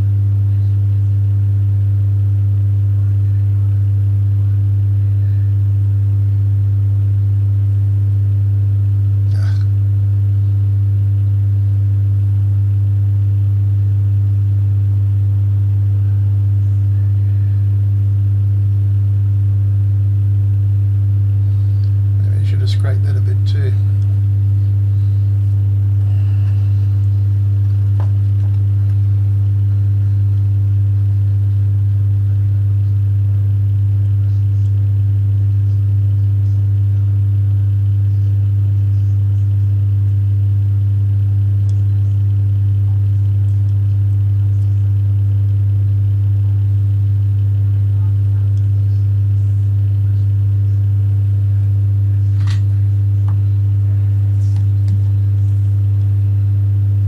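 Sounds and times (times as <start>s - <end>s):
deep electrical hum: 0.0s - 57.0s.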